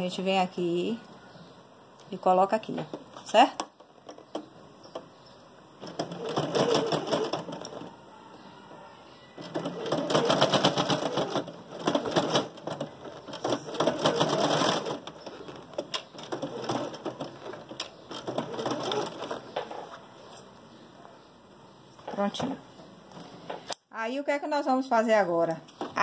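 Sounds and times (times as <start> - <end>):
sewing machine stitching: 5.8 - 7.9, 9.4 - 19.5.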